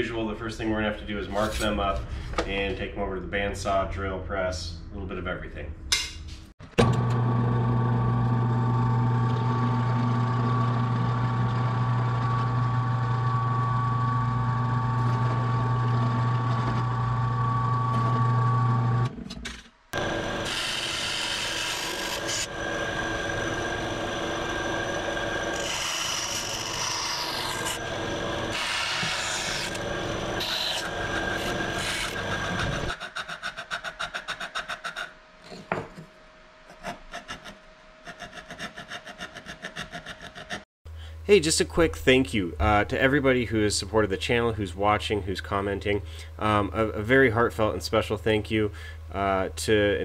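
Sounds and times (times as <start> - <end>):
power tool motor hum: 20.0 - 32.9
bandsaw cutting metal: 20.0 - 35.0
metal cutting and scraping: 20.0 - 35.6.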